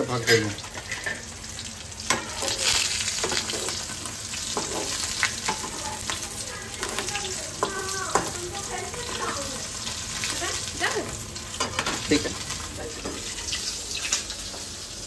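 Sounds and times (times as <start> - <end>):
fish frying in oil: 0.0 - 15.0
metal spatula scraping a pan: 2.1 - 6.2.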